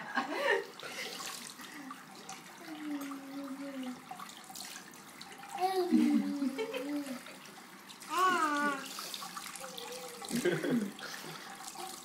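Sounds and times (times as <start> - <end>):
tap water splashing into sink: 0.8 - 12.0
child's high wavering voice: 8.1 - 8.9, 9.6 - 10.3.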